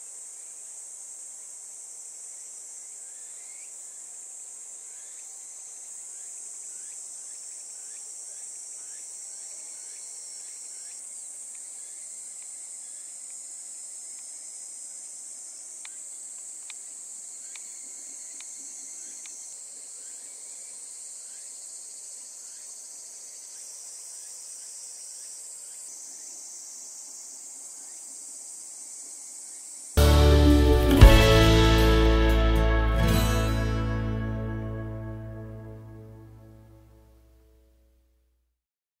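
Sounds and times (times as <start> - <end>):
high-pitched insect chorus: 0.0 - 33.5.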